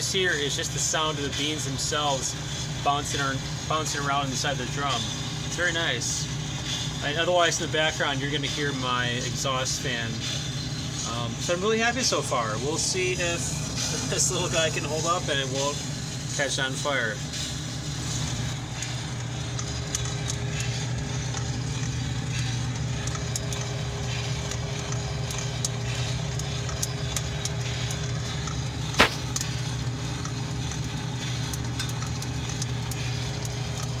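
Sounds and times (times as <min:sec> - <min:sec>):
fans humming: 0:00.0 - 0:34.0
coffee beans tumbling in drum: 0:11.0 - 0:34.0
coffee beans snapping: 0:28.4 - 0:29.5.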